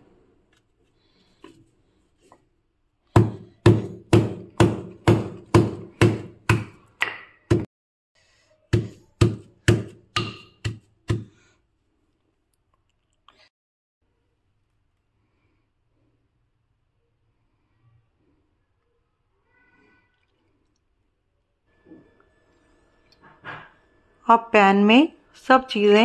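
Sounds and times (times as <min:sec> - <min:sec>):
pestle pounding garlic on stone: 0:03.1 - 0:07.7, 0:08.7 - 0:11.4.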